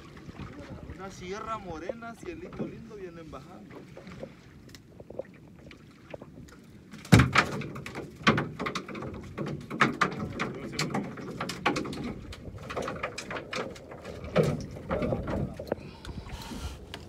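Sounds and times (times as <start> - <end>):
knocks and slaps on boat: 1.8 - 3.0, 6.0 - 15.9.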